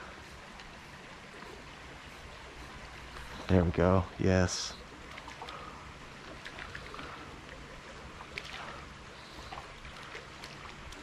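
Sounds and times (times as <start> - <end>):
faint water around kayak: 0.0 - 11.0
small water splashes: 4.8 - 11.0.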